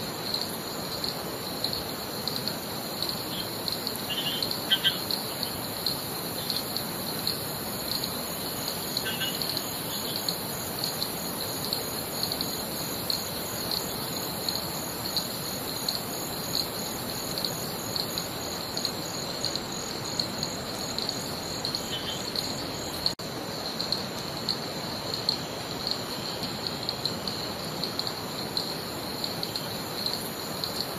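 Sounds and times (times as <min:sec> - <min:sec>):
continuous rushing hiss: 0:00.0 - 0:30.9
insect high chirp: 0:00.0 - 0:30.9
high-pitched insect buzz: 0:03.0 - 0:23.2.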